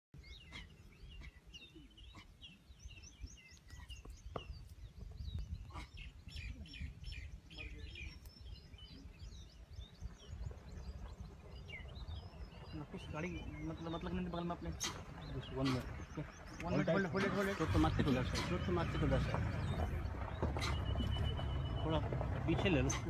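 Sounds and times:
birds chirping: 0:00.2 - 0:23.0
steady low rumble: 0:00.2 - 0:23.0.

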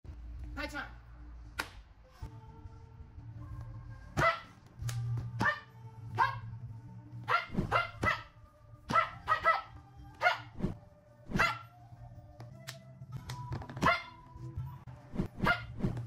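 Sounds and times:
dog barking: 0:04.2 - 0:04.6, 0:05.4 - 0:06.5, 0:07.2 - 0:11.7, 0:13.8 - 0:14.2, 0:15.4 - 0:15.8.

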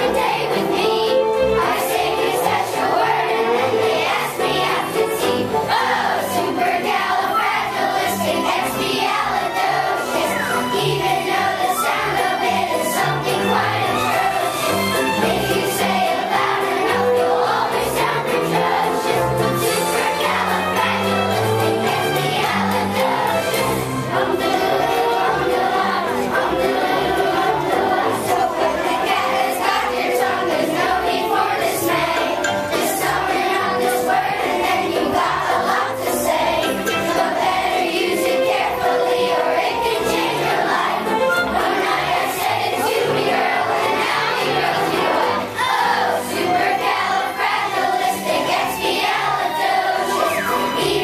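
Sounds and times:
children singing in unison: 0:00.0 - 0:51.0
musical accompaniment: 0:00.0 - 0:51.0.

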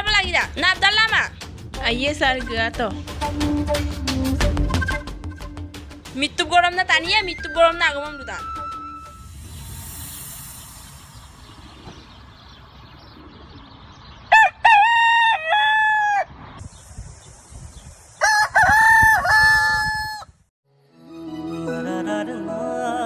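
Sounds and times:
music: 0:00.0 - 0:09.4, 0:20.6 - 0:23.0
steady high hiss: 0:09.2 - 0:11.7
rooster crowing: 0:14.3 - 0:16.3, 0:18.2 - 0:20.3.

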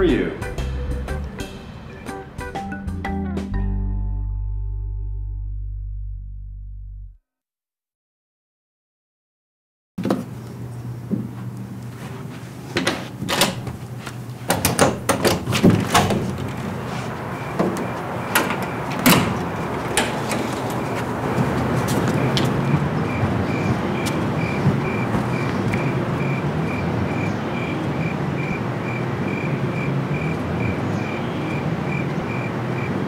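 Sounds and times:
door lock and latch clicks: 0:13.3 - 0:13.8, 0:14.5 - 0:16.7, 0:17.6 - 0:20.8
cricket chirping: 0:16.2 - 0:33.0.

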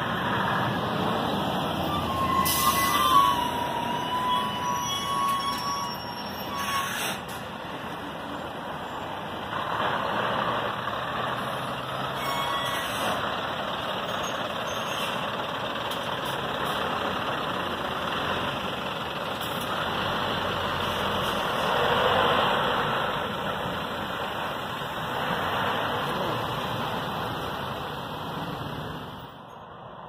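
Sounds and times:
truck engine and tyre noise: 0:00.0 - 0:30.0.

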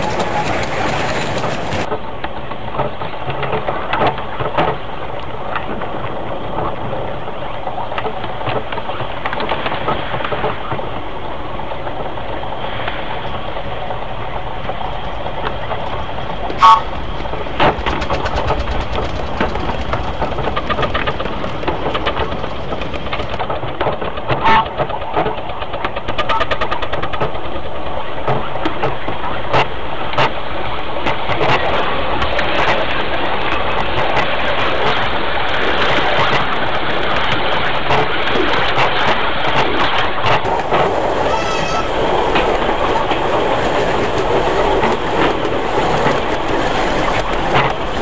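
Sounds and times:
miniature steam train rumble and clatter: 0:00.0 - 0:48.0
steam whistle toot: 0:16.6 - 0:17.0, 0:40.5 - 0:44.1.

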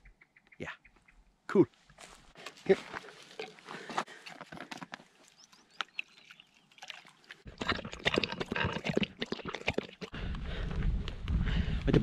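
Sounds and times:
dog lapping water: 0:05.8 - 0:10.2.

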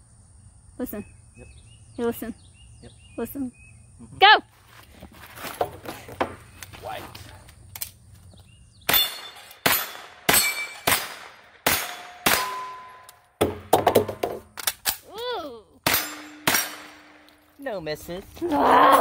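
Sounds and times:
rifle single shots: 0:08.9 - 0:13.0, 0:15.8 - 0:17.4
steel targets clanging: 0:08.9 - 0:15.0, 0:15.8 - 0:17.5.

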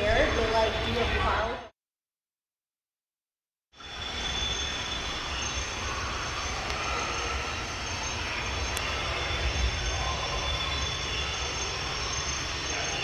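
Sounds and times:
faint high whine: 0:03.8 - 0:13.0.

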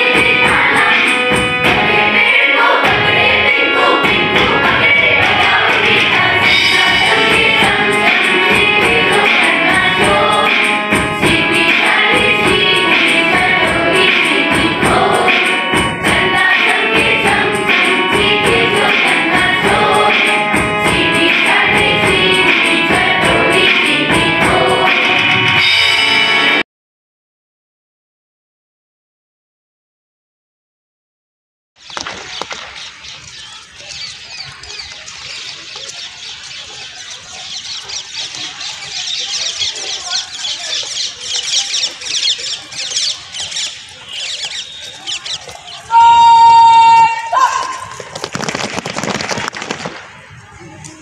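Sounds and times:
young voices choir singing: 0:00.0 - 0:25.6
quick percussion beat: 0:04.0 - 0:25.6
small birds chirping: 0:31.8 - 0:45.9.

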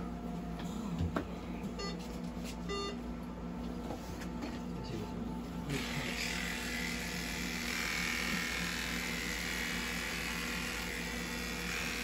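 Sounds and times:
electric clippers buzzing: 0:05.6 - 0:12.0.

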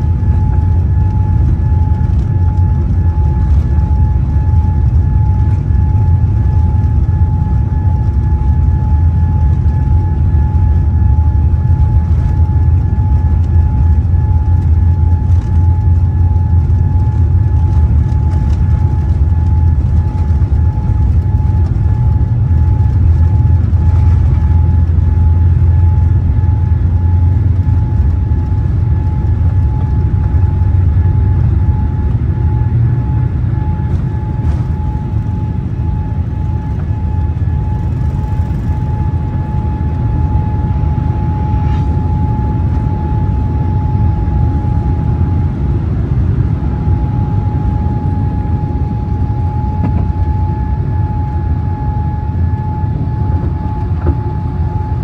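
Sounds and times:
high engine whine: 0:00.0 - 0:55.0
jet engines rumbling: 0:00.0 - 0:55.0.

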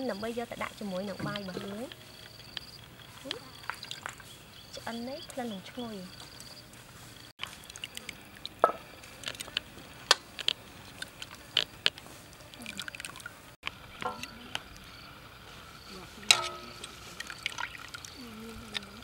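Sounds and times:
broth dripping and splashing: 0:07.4 - 0:14.9, 0:16.2 - 0:19.0
metal tongs clicking on pot: 0:16.3 - 0:17.0.

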